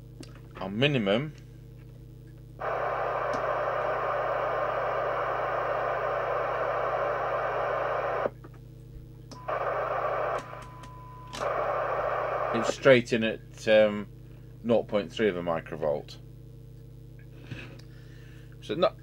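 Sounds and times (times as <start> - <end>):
radio receiver hiss: 2.6 - 8.3, 9.3 - 13.0
steady test tone: 9.4 - 12.8.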